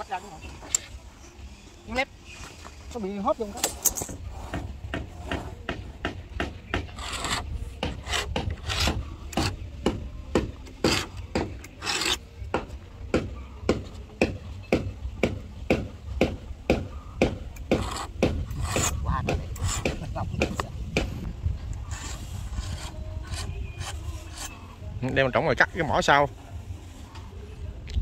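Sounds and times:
hand tool scraping wood: 6.7s - 12.2s, 17.6s - 21.2s, 21.8s - 24.7s.

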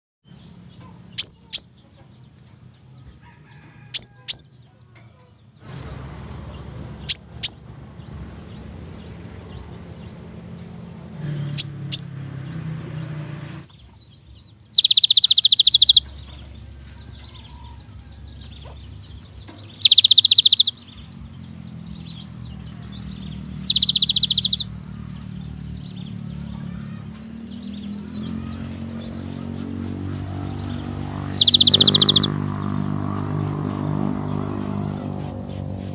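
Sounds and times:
harsh buzzing bird rattles: 5.6s - 13.8s, 14.7s - 17.7s, 18.5s - 21.0s, 23.2s - 24.7s, 26.6s - 35.9s
bird whistles sliding downward: 14.8s - 16.0s, 19.8s - 20.7s, 23.7s - 24.6s, 31.4s - 32.3s.

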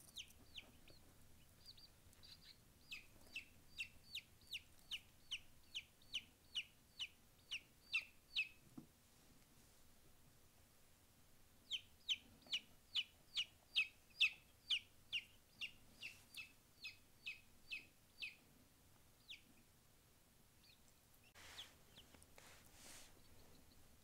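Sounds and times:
chick chirping: 0.0s - 8.6s, 11.6s - 18.5s, 19.2s - 19.7s, 20.6s - 22.2s, 23.1s - 23.9s
rustle: 9.0s - 10.0s, 20.9s - 23.8s.

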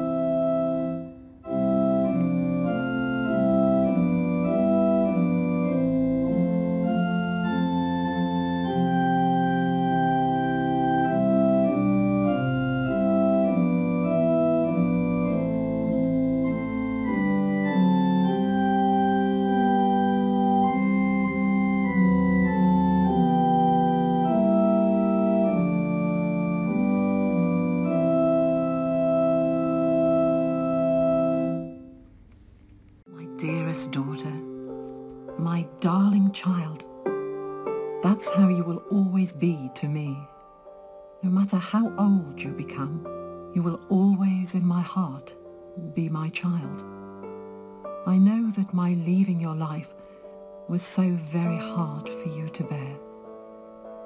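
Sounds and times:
slow organ music: 0.0s - 54.0s.

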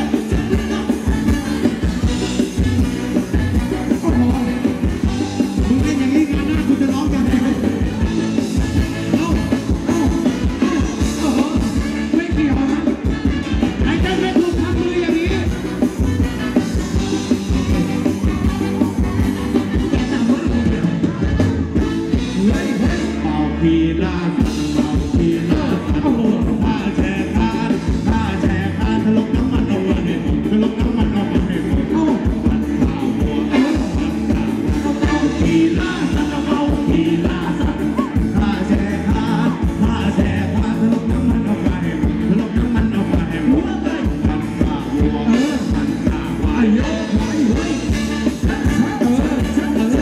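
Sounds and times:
live dance band playing: 0.0s - 50.0s
person singing: 0.0s - 50.0s.

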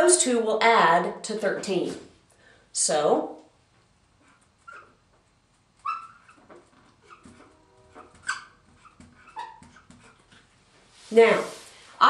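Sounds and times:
marker squeaking on whiteboard: 4.2s - 10.6s.

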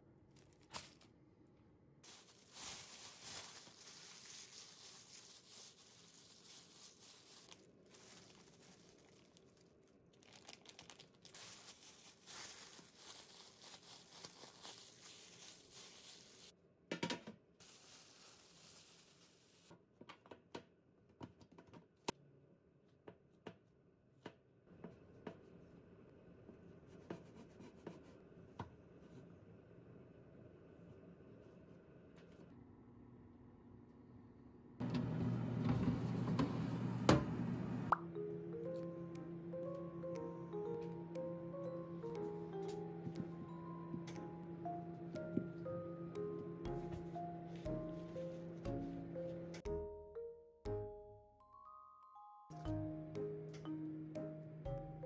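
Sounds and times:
plastic bag crinkling: 2.0s - 16.5s, 17.6s - 19.7s.

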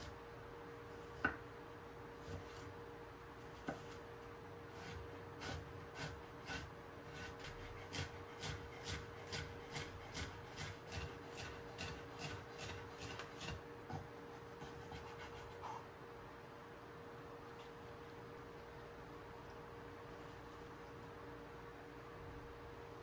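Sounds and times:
knife chopping on wooden board: 1.2s - 1.4s, 3.5s - 4.0s, 4.8s - 15.8s.

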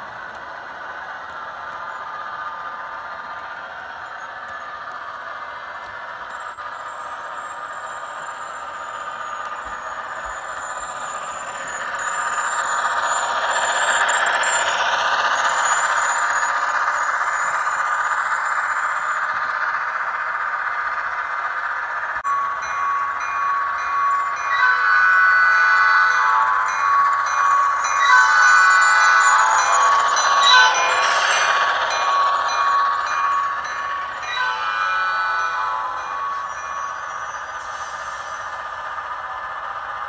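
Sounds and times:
model train running on track: 0.0s - 40.0s
steady ringing tones: 4.0s - 40.0s
diesel engine sound from small speaker: 6.7s - 22.2s, 26.1s - 33.1s.

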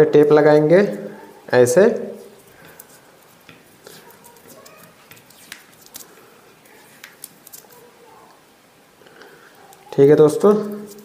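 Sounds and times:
tape peeling and crackling: 2.2s - 8.4s, 10.6s - 11.0s.

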